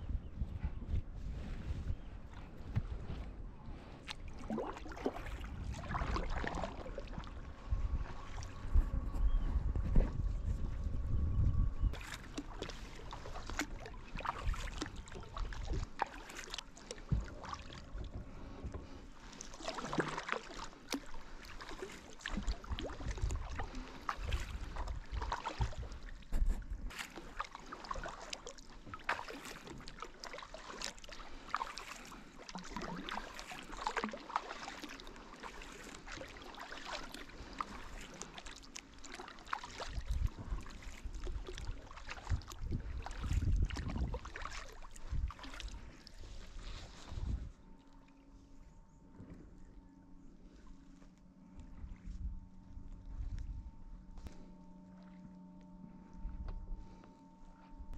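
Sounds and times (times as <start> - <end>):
low wind rumble on microphone: 0.0 - 16.0, 17.0 - 20.0, 21.1 - 27.2, 39.8 - 47.8, 51.4 - 54.5, 55.9 - 57.9
water sloshing against hull: 0.0 - 57.9
paddle splashing in water: 3.9 - 8.7, 11.9 - 47.5.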